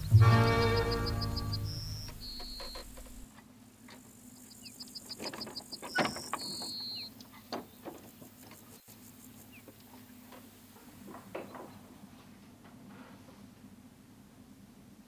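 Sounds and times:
faint bird whistles: 0:00.0 - 0:03.2, 0:05.8 - 0:07.1.

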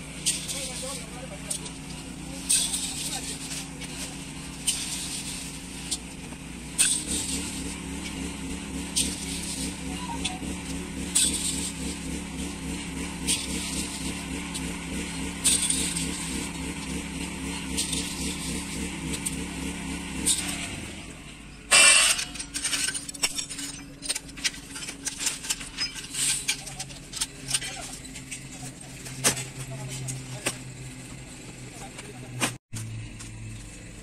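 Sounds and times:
engine running: 0:00.0 - 0:34.0
metal pans scraping and clinking: 0:21.7 - 0:30.1.

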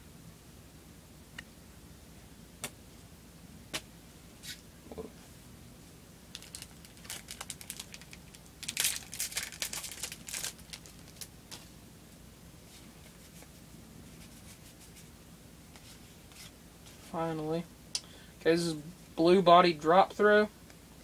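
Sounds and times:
shiny wrapper tearing and crinkling: 0:06.3 - 0:11.3.

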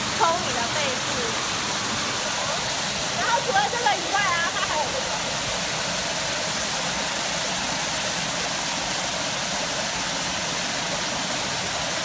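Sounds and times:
water jets churning water: 0:00.0 - 0:12.0.

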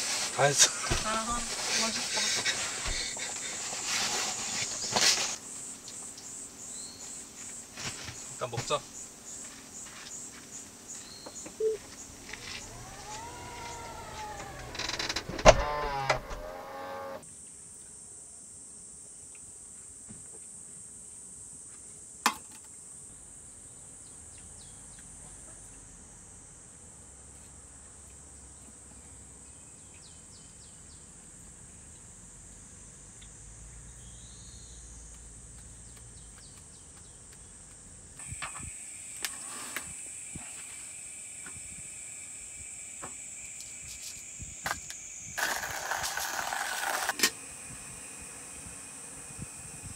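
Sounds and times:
crickets chirring: 0:00.0 - 0:16.4, 0:27.8 - 0:49.9
lower insect drone: 0:00.0 - 0:49.9.

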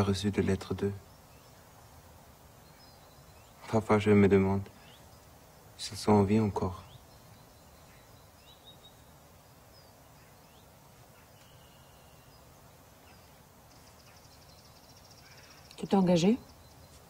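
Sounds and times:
bird chirps: 0:00.0 - 0:17.0
bird trill: 0:06.4 - 0:17.0.

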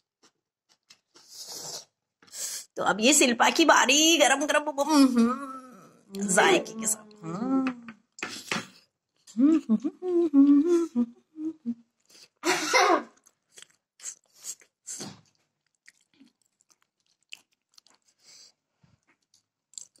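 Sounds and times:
person speaking: 0:02.8 - 0:08.0
person chewing with mouth clicks: 0:13.1 - 0:20.0.

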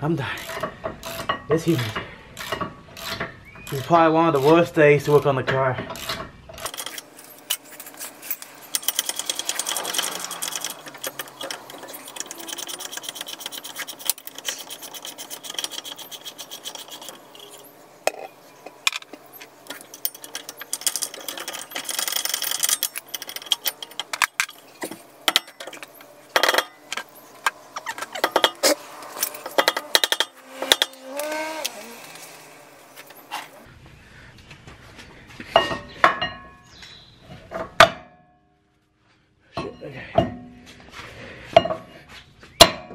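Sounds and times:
ratchet wrench clicking: 0:00.4 - 0:04.5, 0:05.9 - 0:18.2, 0:19.7 - 0:33.3
metal tools clanking: 0:00.4 - 0:33.7.

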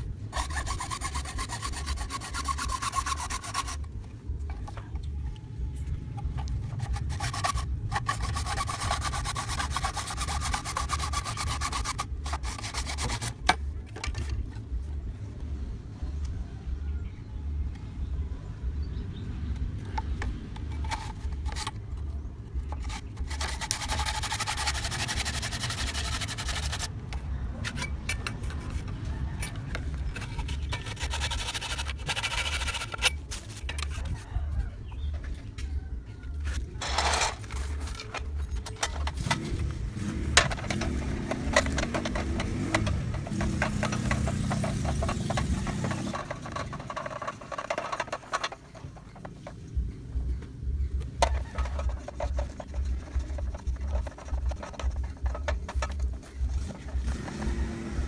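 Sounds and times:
hacksaw sawing plastic pipe: 0:00.3 - 0:03.9, 0:06.6 - 0:14.3, 0:22.7 - 0:26.9, 0:30.1 - 0:34.2, 0:40.4 - 0:49.4, 0:51.2 - 0:58.0.

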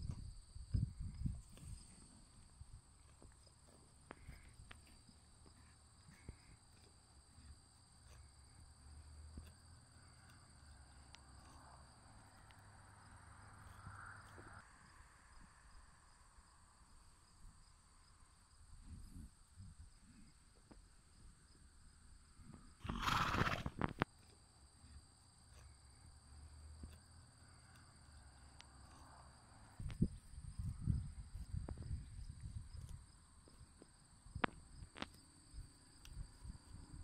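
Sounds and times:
horse snorting: 0:22.8 - 0:23.8.

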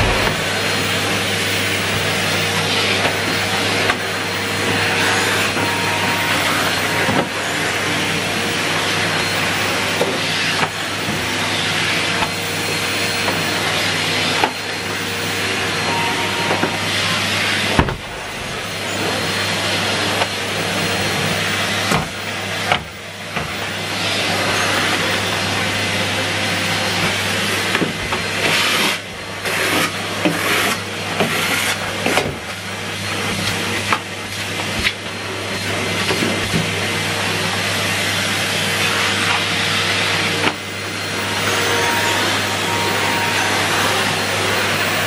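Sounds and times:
vacuum tool knocking: 0:00.0 - 0:00.9
vacuum cleaner running: 0:00.0 - 0:45.0.

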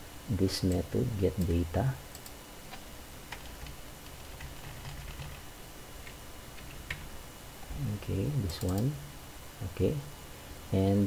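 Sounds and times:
faint low hum: 0:00.0 - 0:11.0.

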